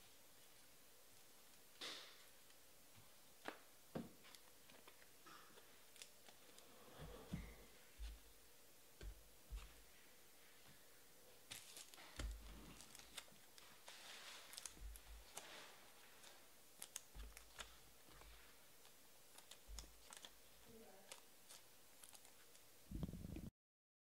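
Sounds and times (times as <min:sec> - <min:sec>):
plastic rustles: 0:11.4 - 0:22.6.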